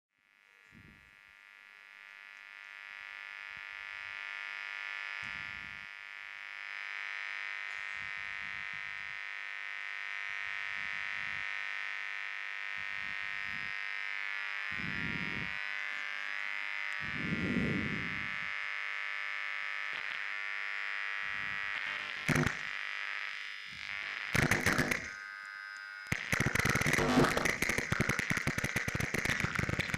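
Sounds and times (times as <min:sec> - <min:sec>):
high electronic drone: 0:12.7 - 0:18.6, 0:19.8 - 0:29.9.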